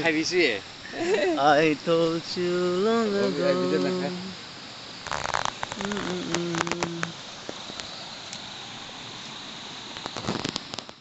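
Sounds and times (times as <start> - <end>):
background hiss: 0.0 - 11.0
insects chirring: 0.0 - 11.0
fishing net clicks and rustles: 5.1 - 8.0, 10.0 - 11.0.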